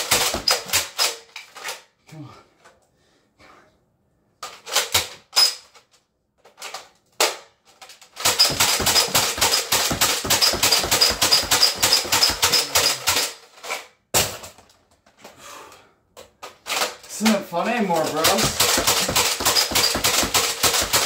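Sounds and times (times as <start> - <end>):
toy blaster shots clacking: 0.0 - 1.6, 8.0 - 14.5, 16.5 - 21.0.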